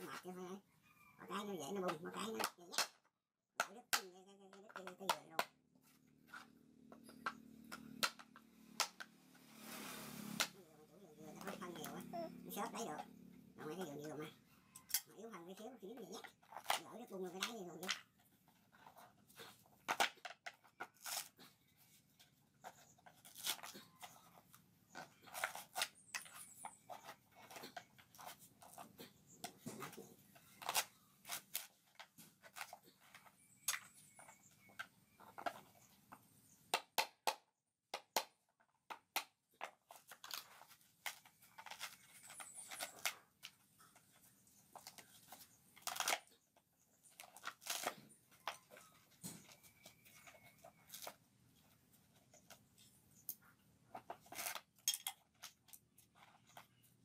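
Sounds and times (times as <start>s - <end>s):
metal tool scraping coconut: 20.7s - 21.9s, 22.6s - 35.9s.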